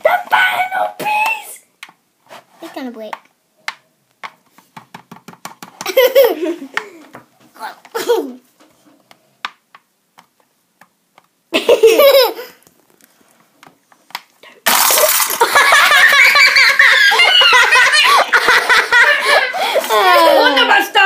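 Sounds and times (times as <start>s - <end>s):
high-pitched laughter: 15.1s - 20.8s.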